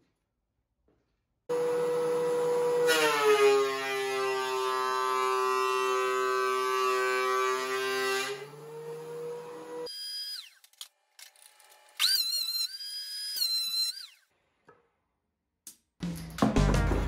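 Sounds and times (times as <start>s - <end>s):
thickness planer whining: 1.5s - 10.6s.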